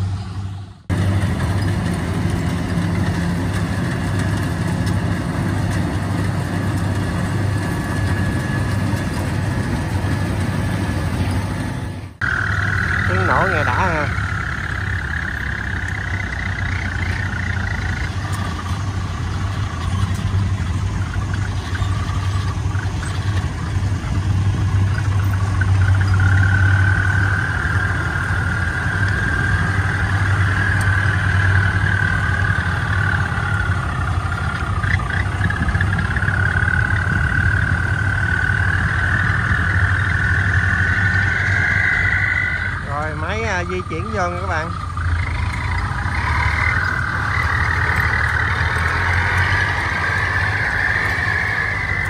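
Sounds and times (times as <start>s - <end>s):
tracked carrier engine droning: 0.0s - 52.0s.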